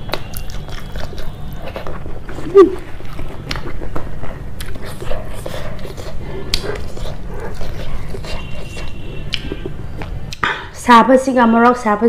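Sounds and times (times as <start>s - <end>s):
chewing and lip smacking: 0.0s - 10.5s
small mouth clicks: 6.5s - 10.6s.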